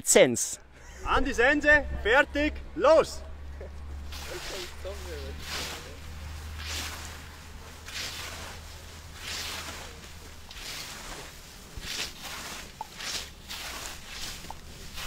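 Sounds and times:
scythes swishing through grass: 3.9s - 15.0s.

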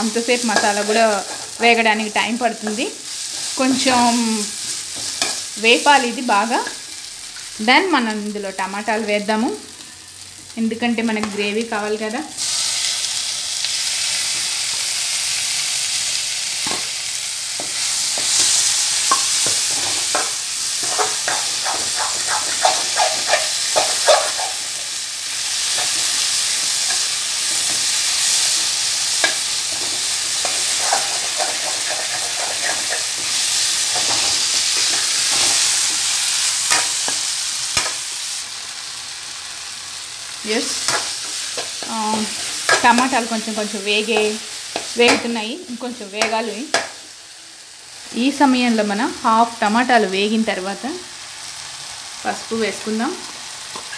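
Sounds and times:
food sizzling in hot oil: 0.0s - 53.9s
metal spatula scraping pan: 17.6s - 25.0s, 25.6s - 35.9s.

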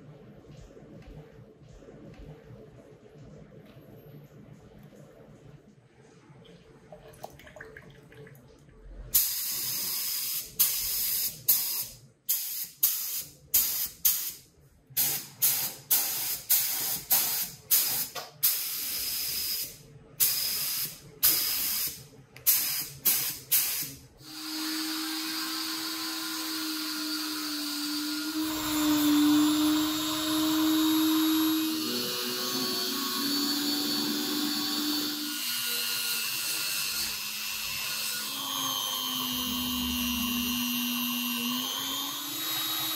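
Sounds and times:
spray gun hissing bursts: 15.0s - 25.4s
rotary tool humming: 24.2s - 42.9s.

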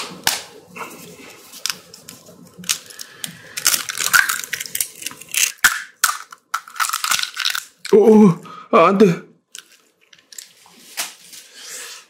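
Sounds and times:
sharp clicks and crackles: 1.6s - 8.0s.

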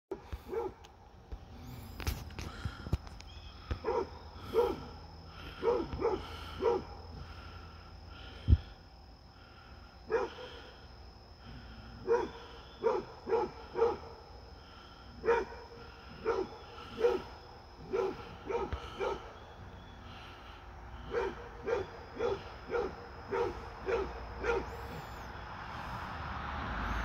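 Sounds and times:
dog barking: 0.4s - 0.9s, 3.8s - 4.9s, 5.5s - 7.0s, 10.1s - 10.6s, 12.0s - 14.2s, 15.2s - 19.3s, 21.0s - 25.2s.

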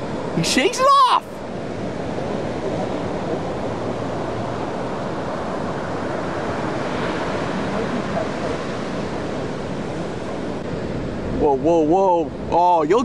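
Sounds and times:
waves breaking: 0.0s - 13.0s.

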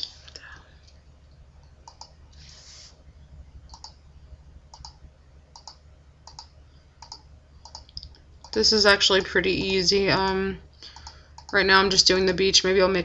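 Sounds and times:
steady low hum: 0.0s - 13.0s
computer mouse clicking: 1.8s - 2.2s, 3.7s - 4.0s, 4.7s - 9.8s, 10.9s - 11.6s.

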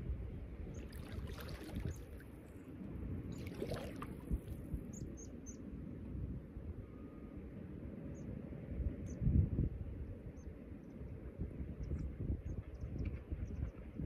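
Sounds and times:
water sloshing: 0.8s - 2.6s, 3.3s - 4.7s.

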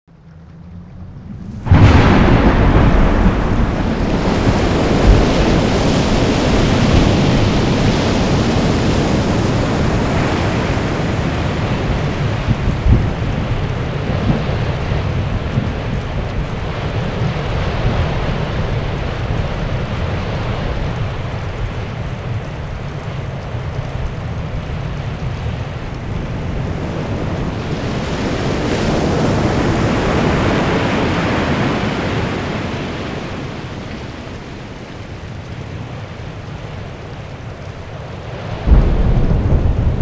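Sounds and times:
loud rushing noise with rumble: 0.1s - 22.4s, 38.1s - 40.0s.

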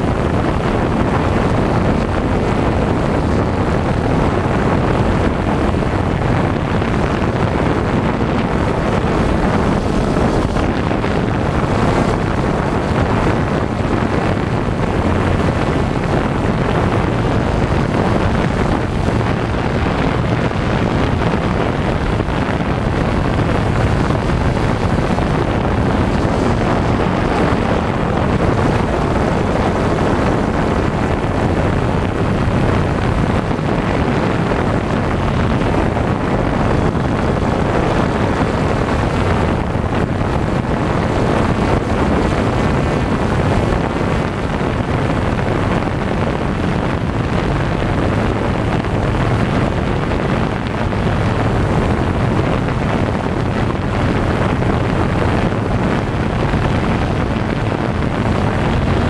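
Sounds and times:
wind noise on microphone: 0.0s - 59.0s
drone propellers whirring: 4.7s - 31.9s.

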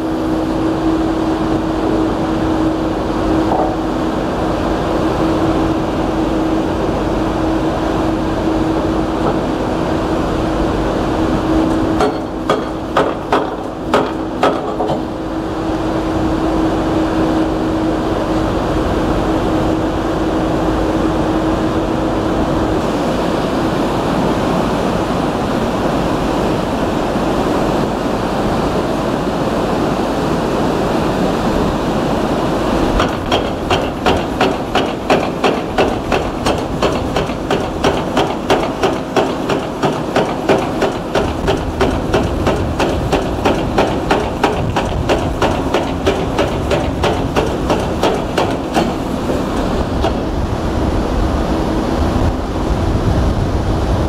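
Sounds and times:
steady hum: 0.0s - 54.0s
hydraulic breaker hammering concrete: 11.9s - 15.2s, 32.9s - 50.5s
river water rushing: 48.2s - 52.7s.

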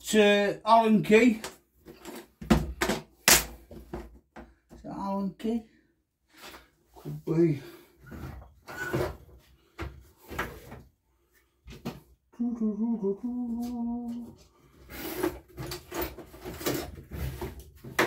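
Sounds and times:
man humming: 12.4s - 14.3s.

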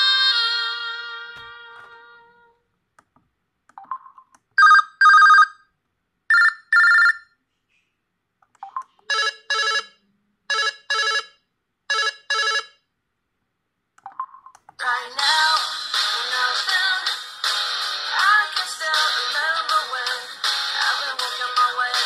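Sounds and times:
melodic ringtone: 4.6s - 5.6s, 6.3s - 7.2s, 9.1s - 11.3s
telephone ring double beeps: 6.3s - 7.2s.

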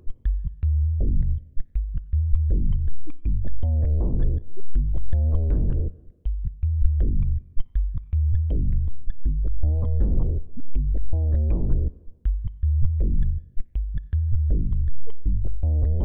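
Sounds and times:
electronic music with heavy bass: 8.0s - 16.0s.

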